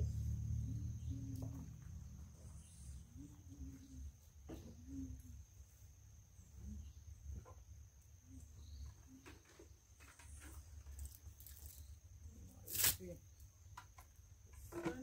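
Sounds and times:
low rumble: 0:00.0 - 0:03.3
insects droning: 0:00.0 - 0:15.0.

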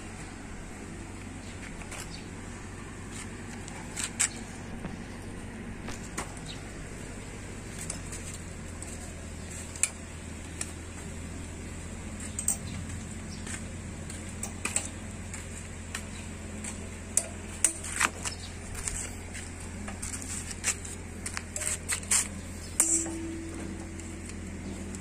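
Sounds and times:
steady low hum: 0:00.0 - 0:25.0
hand tools clinking on metal: 0:12.2 - 0:13.0, 0:17.1 - 0:18.2, 0:19.8 - 0:24.4.

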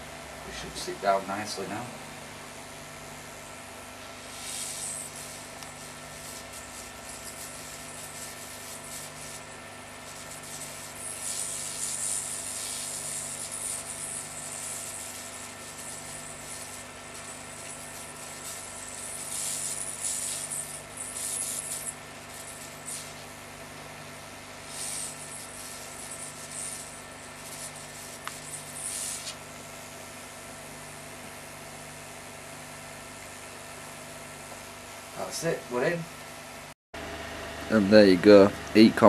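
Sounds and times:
steady electrical hum: 0:00.0 - 0:39.0
flux sizzling: 0:04.2 - 0:23.4, 0:24.4 - 0:29.4.

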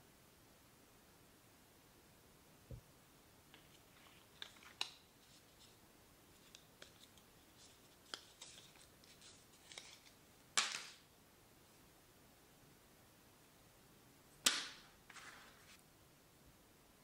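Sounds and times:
plastic and paper rustling: 0:03.5 - 0:10.2, 0:15.1 - 0:15.8.

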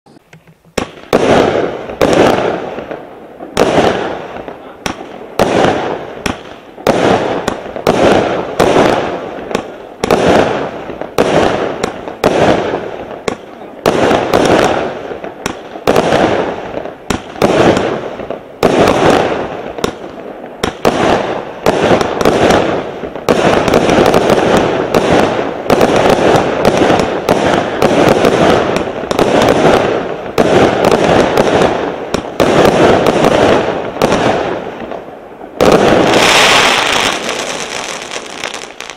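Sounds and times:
firework shots banging: 0:00.1 - 0:38.9.

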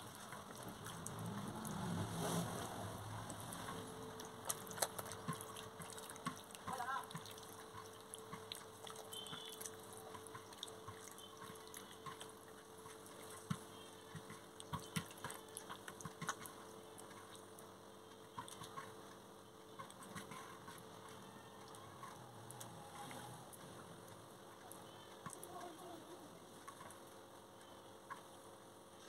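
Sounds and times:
wet squelches and clicks: 0:00.0 - 0:01.9, 0:03.2 - 0:28.5
hand squishing chicken in marinade: 0:03.3 - 0:17.5.

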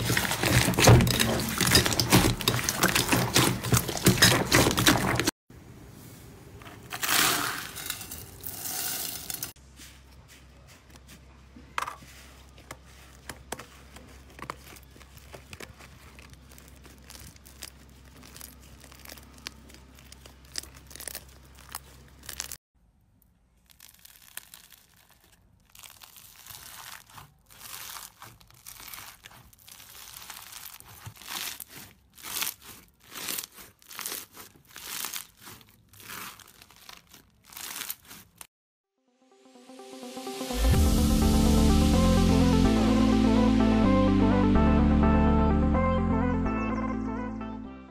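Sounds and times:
soap curls crunching: 0:00.0 - 0:05.4, 0:06.9 - 0:22.6, 0:23.6 - 0:38.5.

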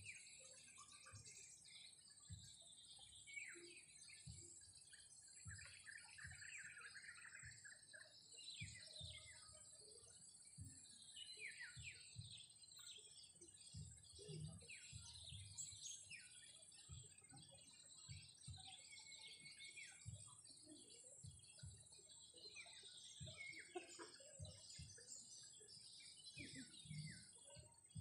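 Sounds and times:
small birds chirping: 0:00.0 - 0:28.0
soft low thuds: 0:13.7 - 0:15.7, 0:21.2 - 0:22.0.

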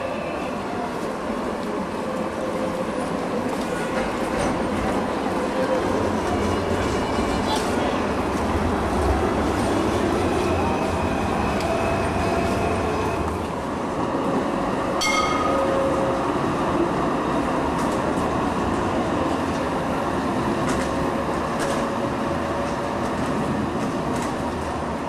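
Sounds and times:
street sound: 0:00.0 - 0:25.0
tram wheels on rail and motors: 0:00.0 - 0:25.0
high-pitched ring: 0:15.0 - 0:15.8.

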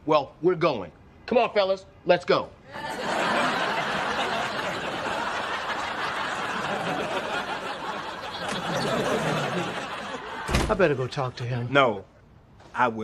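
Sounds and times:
studio audience laughing: 0:02.7 - 0:11.7.

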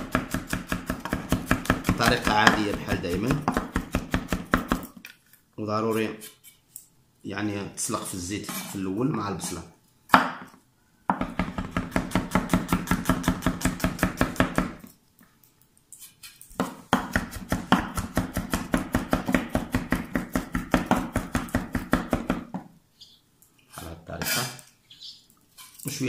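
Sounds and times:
knife chopping on wooden board: 0:00.0 - 0:04.9, 0:11.1 - 0:14.8, 0:16.6 - 0:22.6.

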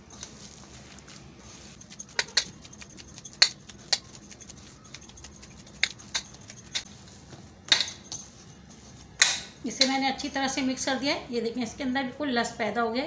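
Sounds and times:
hands kneading wet meat: 0:00.8 - 0:07.2.

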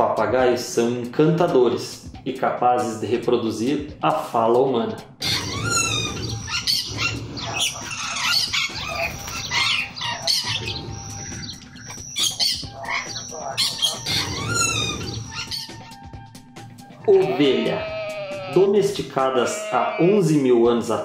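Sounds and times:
parrot squawking: 0:05.2 - 0:16.0, 0:17.0 - 0:20.6.

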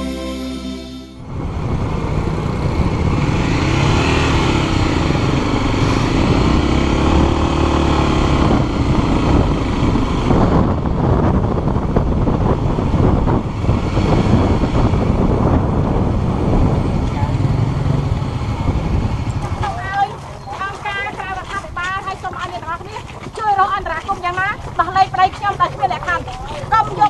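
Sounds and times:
road and air noise: 0:01.2 - 0:23.4
motorcycle engine riding: 0:01.2 - 0:27.0.

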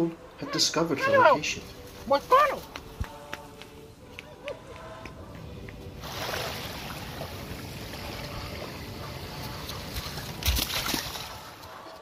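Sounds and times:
water rushing: 0:05.9 - 0:11.6.

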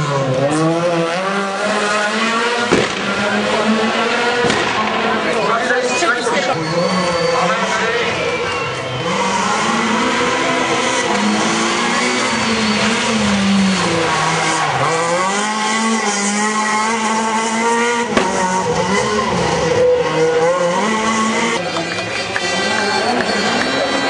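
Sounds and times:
rally car engine revving: 0:00.0 - 0:24.0
sharp crack: 0:02.7 - 0:03.2, 0:04.4 - 0:05.0.

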